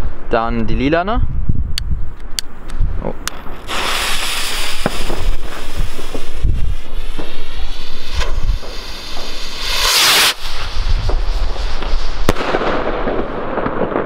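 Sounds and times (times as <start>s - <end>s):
wind rumble on microphone: 0.0s - 9.6s, 10.3s - 14.0s
fuse burning: 2.1s - 13.8s
rocket lifting off with rushing hiss: 3.3s - 13.8s.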